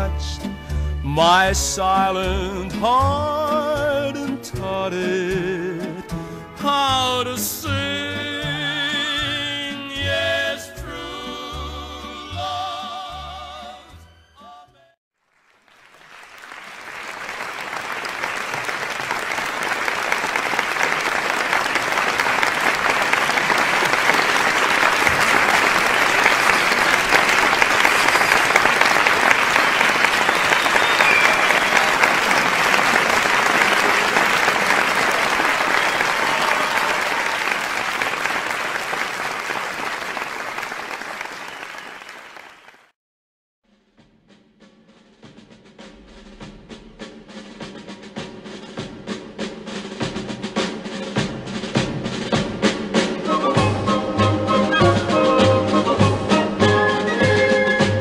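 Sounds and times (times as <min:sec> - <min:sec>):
audience applause: 0:15.2 - 0:42.9.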